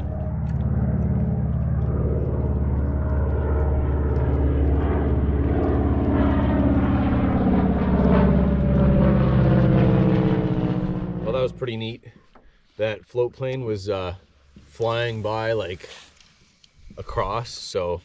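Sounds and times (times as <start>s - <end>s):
propeller plane droning overhead: 0.0s - 12.4s.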